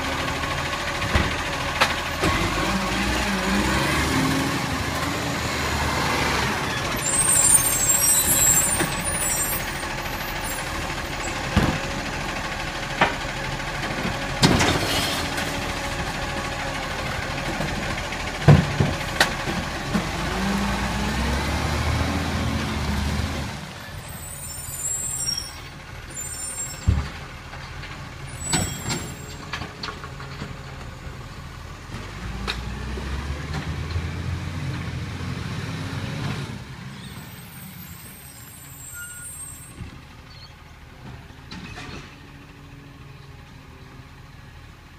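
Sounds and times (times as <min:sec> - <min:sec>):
diesel engine running: 0:00.0 - 0:44.9
air brakes hissing: 0:24.0 - 0:26.9, 0:37.0 - 0:39.8.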